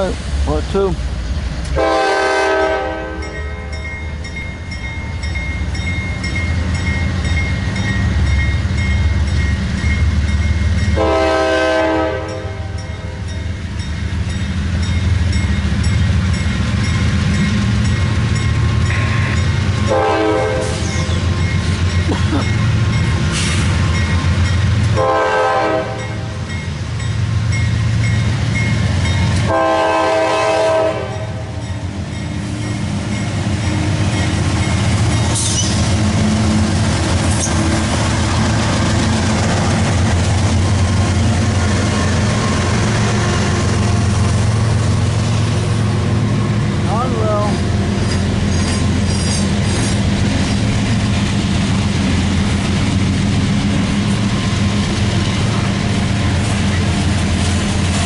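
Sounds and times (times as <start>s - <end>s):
diesel locomotive rumbling: 0.0s - 58.0s
locomotive air horn blasts: 1.8s - 3.7s, 11.0s - 12.8s, 18.9s - 21.0s, 24.9s - 26.4s, 29.4s - 31.5s
crossing signal bell ringing: 3.2s - 11.2s, 12.3s - 19.8s, 20.8s - 23.3s, 26.0s - 29.6s, 31.6s - 35.6s.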